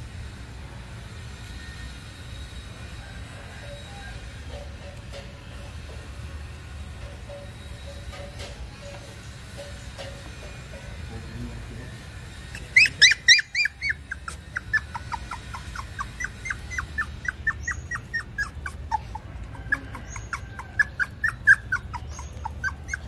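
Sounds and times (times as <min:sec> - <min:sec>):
puppy whimpering: 0:12.5 - 0:23.0.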